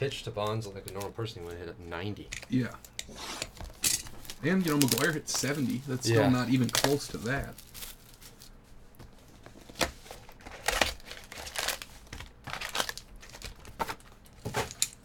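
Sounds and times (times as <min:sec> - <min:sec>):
foil packs crinkling: 0:03.7 - 0:08.6, 0:09.8 - 0:15.0
sharp foil crinkles: 0:04.1 - 0:08.6, 0:10.4 - 0:14.2.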